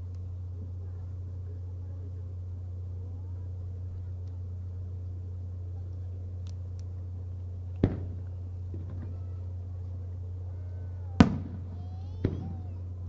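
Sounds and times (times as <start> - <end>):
steady low hum: 0.0 - 13.0
firework bang with echo: 7.8 - 9.2, 11.2 - 12.7.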